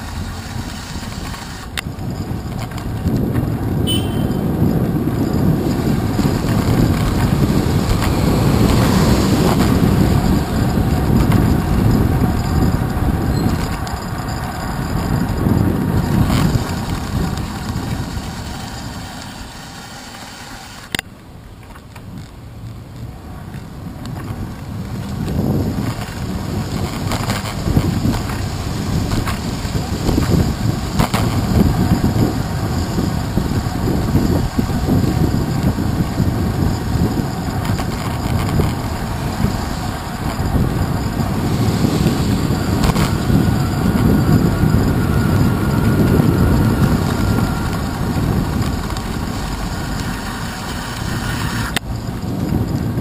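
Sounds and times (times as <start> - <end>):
bicycle tyres hissing on wet pavement: 0.0 - 1.7, 16.5 - 20.9, 24.7 - 37.4, 38.5 - 52.4
car traffic: 0.0 - 53.0
wind rushing over camera: 0.0 - 53.0.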